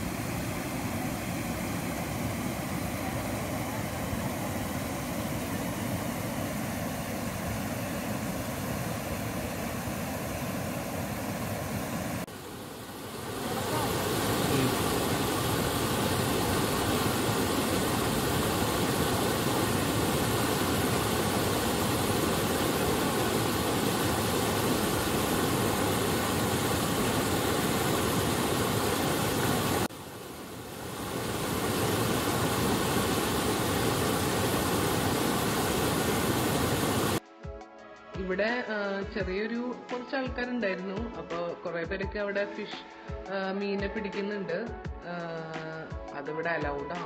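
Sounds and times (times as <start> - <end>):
water rushing over rocks: 10.7 - 37.2.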